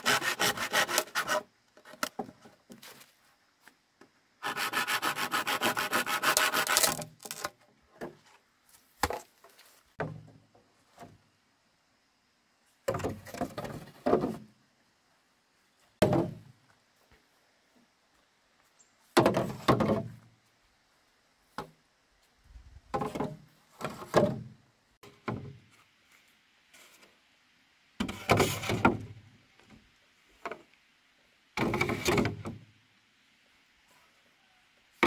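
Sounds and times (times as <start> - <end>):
bamboo knocking and scraping: 0.0 - 11.2, 12.8 - 14.6, 16.0 - 16.5, 19.0 - 20.3, 21.5 - 21.8, 22.9 - 27.2, 28.0 - 29.8, 31.6 - 32.6.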